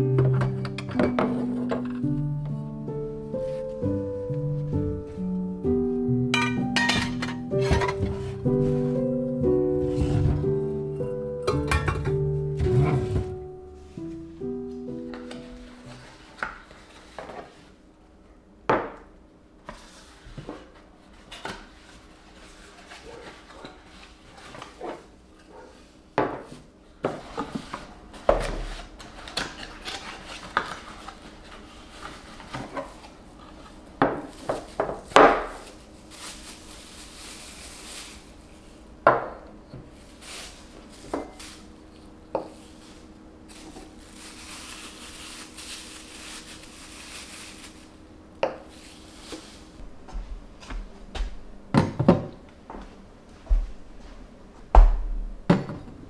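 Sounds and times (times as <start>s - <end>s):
glass jars clinking on table: 6.4s - 8.0s
cardboard and plastic rustling: 6.6s - 10.6s, 12.6s - 17.8s, 19.7s - 38.8s, 39.8s - 48.0s, 48.6s - 49.8s.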